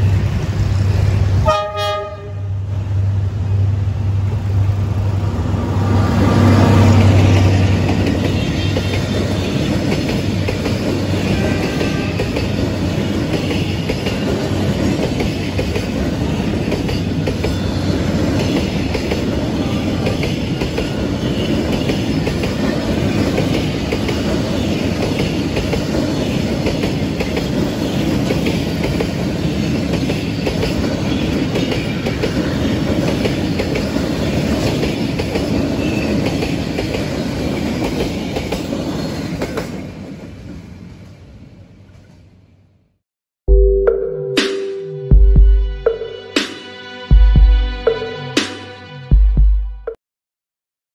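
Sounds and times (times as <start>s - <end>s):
freight train wheels clattering: 6.8s - 39.8s.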